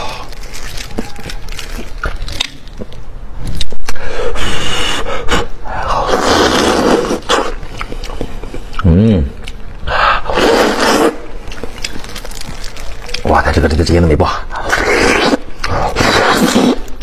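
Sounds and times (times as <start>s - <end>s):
wet chewing and sucking: 0.0s - 3.0s, 4.6s - 13.3s, 14.5s - 17.0s.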